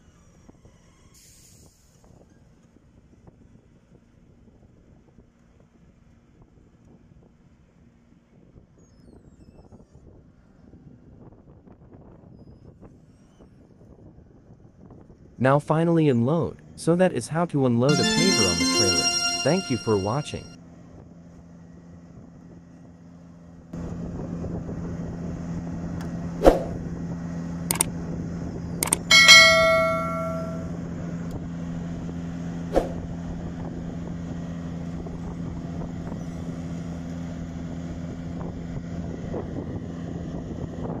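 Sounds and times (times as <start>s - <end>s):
bell chime: 17.9s - 20.6s, 29.1s - 30.7s.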